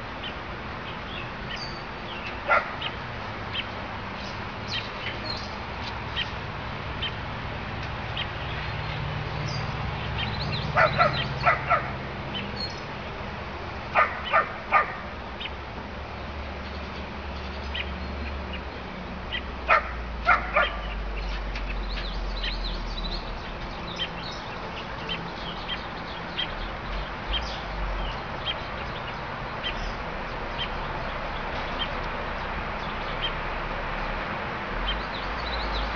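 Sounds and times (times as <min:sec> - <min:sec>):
dog barking: 0:02.5 - 0:02.9, 0:10.8 - 0:12.0, 0:14.0 - 0:15.0, 0:19.7 - 0:20.9.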